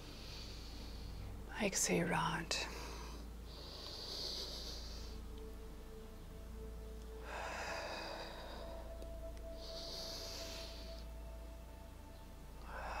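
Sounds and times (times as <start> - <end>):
soft background music: 0.0 - 13.0
person breathing through nose: 2.7 - 5.3, 7.2 - 11.2.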